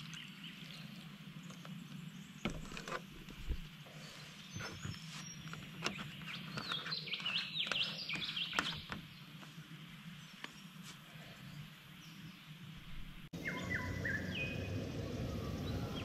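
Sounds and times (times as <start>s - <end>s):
birds chirping and singing: 3.5s - 9.3s, 13.4s - 16.0s.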